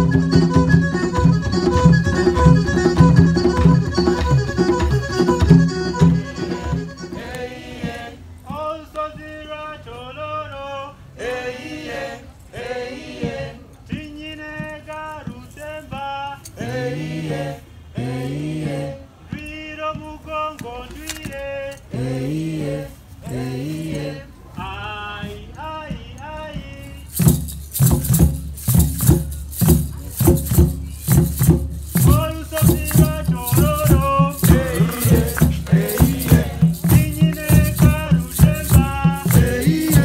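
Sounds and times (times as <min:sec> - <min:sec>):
loud rhythmic music with drum beat: 0:00.0 - 0:07.2, 0:26.9 - 0:40.0
man singing: 0:31.9 - 0:40.0.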